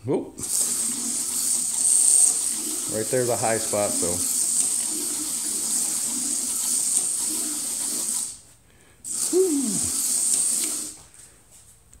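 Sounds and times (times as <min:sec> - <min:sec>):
slot car motor buzzing: 0:00.4 - 0:08.4.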